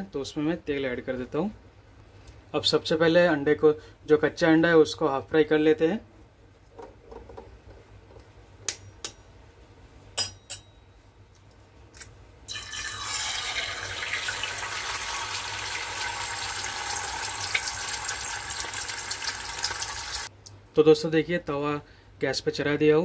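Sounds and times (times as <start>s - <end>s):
egg sizzling in hot oil: 12.5s - 20.3s.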